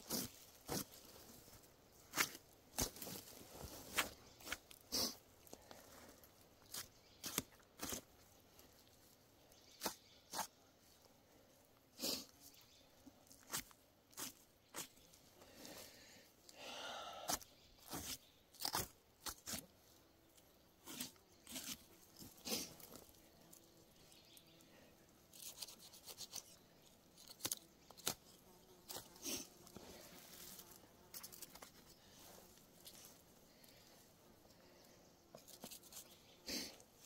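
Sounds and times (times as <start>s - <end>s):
knife cutting hide and flesh: 6.7s - 8.1s, 9.8s - 10.5s, 13.4s - 15.0s, 17.3s - 19.7s, 20.8s - 23.0s, 25.3s - 26.6s, 27.2s - 29.5s.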